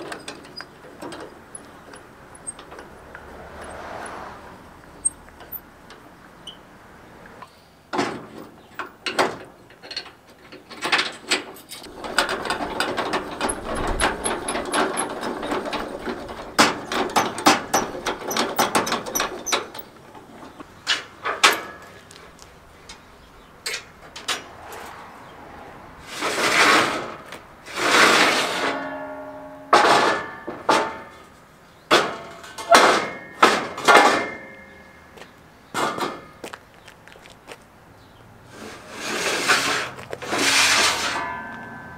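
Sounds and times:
metal ramps scraping and clanking: 0.0s - 6.6s, 8.0s - 22.2s, 23.7s - 34.9s, 38.5s - 41.9s
jack rattling clicks: 10.8s - 19.9s.

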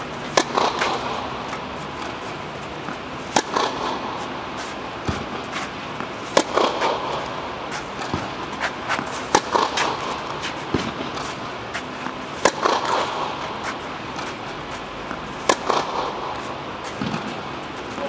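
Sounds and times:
tennis ball bouncing: 0.0s - 18.0s
tennis racket hitting ball: 0.0s - 18.0s.

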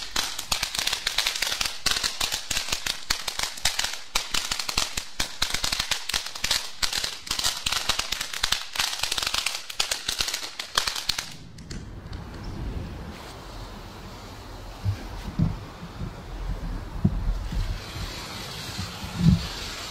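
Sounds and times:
firework crackling and popping: 0.0s - 19.9s
wind rumble on microphone: 11.3s - 19.9s.

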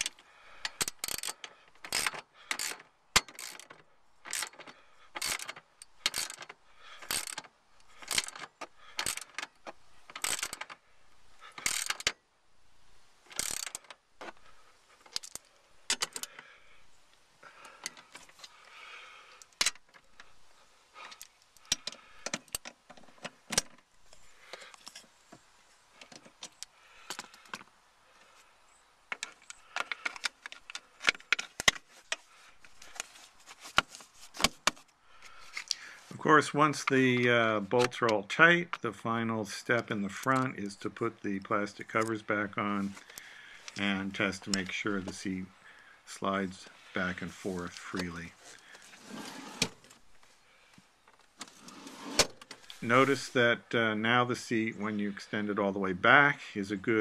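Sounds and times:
ratchet wrench clicking: 0.0s - 9.5s, 10.1s - 10.7s, 11.6s - 12.2s, 13.4s - 13.9s
soft handling noises: 13.4s - 18.8s, 19.4s - 38.9s, 39.7s - 53.7s.

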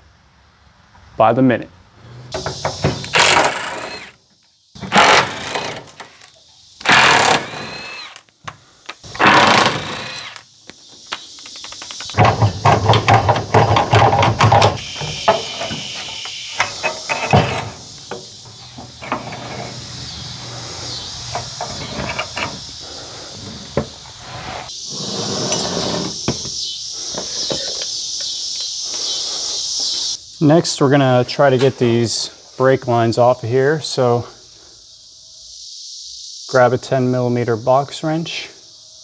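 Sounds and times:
power tool running: 3.1s - 4.2s, 4.8s - 6.1s, 6.8s - 8.2s, 9.1s - 10.4s
metallic clicks and clinks: 27.2s - 28.8s.

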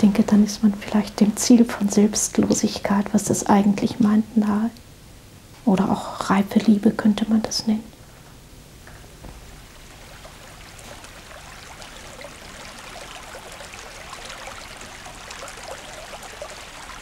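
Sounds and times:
stream trickling and babbling: 9.1s - 17.0s.

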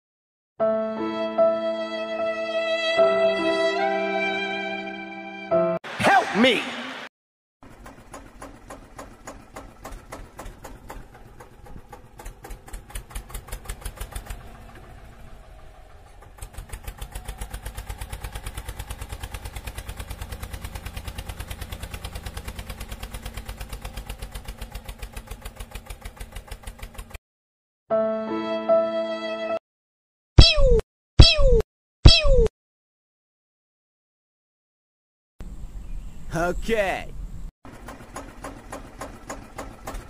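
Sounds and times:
tractor engine chugging: 7.6s - 27.2s, 37.7s - 40.0s.

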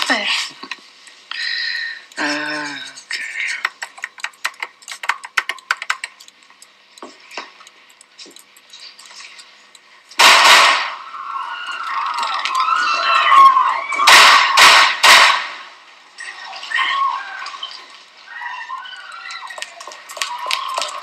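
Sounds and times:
light clicks and taps: 3.0s - 10.2s
gunshot: 10.2s - 11.0s, 14.1s - 15.7s
people screaming: 10.9s - 15.0s, 16.2s - 21.0s.

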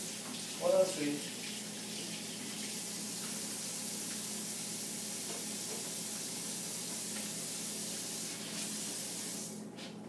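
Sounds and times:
water running from tap into sink: 0.0s - 9.5s.

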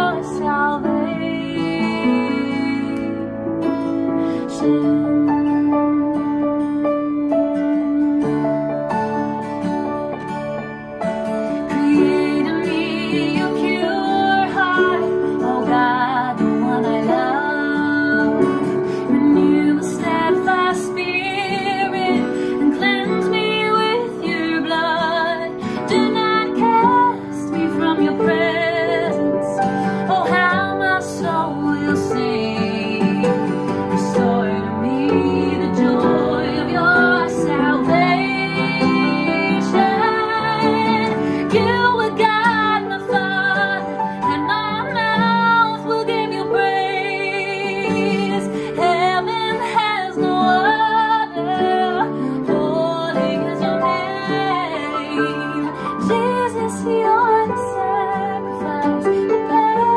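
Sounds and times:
woman singing with vibrato: 0.0s - 3.4s, 4.3s - 6.7s, 11.6s - 59.9s
acoustic guitar: 0.0s - 59.9s
upright piano: 0.0s - 59.9s.

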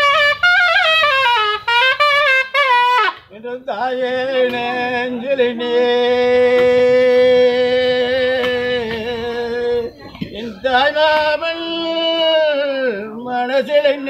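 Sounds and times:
reed wind instrument notes: 0.0s - 3.3s.

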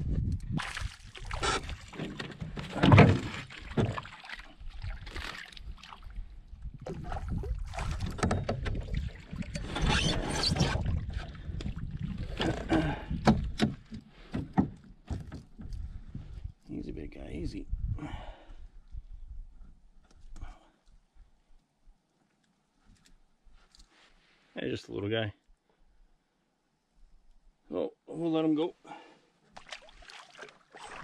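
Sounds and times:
knocks scrapes and rustles: 9.4s - 11.3s.

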